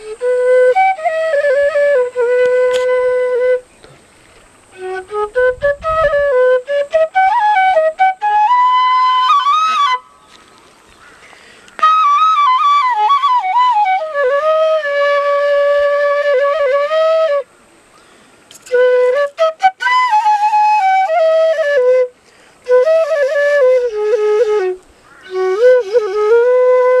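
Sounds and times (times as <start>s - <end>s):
bamboo flute folk tune: 0.0s - 27.0s.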